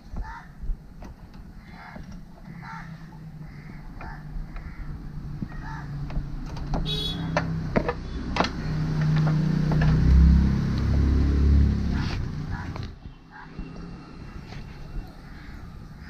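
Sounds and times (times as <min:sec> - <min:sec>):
clutch cable clicks and taps: 0:01.0 - 0:02.6, 0:03.7 - 0:04.7.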